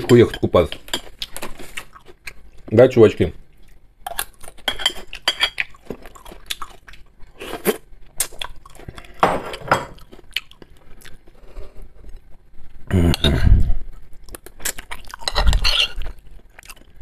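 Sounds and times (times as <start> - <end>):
chewing and crunching: 0.6 - 2.7, 3.5 - 9.2, 10.0 - 12.3, 14.2 - 17.0
spoon clinking on plate: 15.3 - 16.0.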